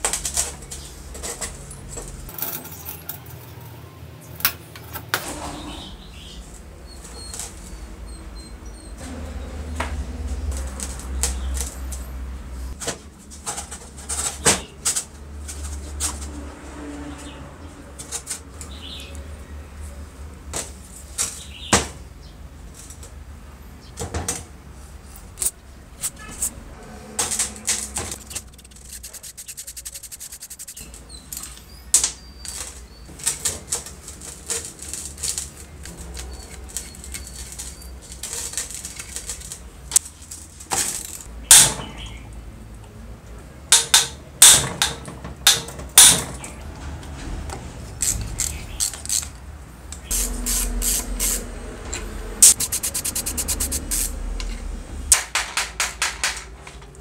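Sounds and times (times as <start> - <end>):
hand tools clinking on metal: 0.2 - 3.8, 30.5 - 32.8
rapid evenly spaced clicks: 28.2 - 30.8, 52.4 - 54.0.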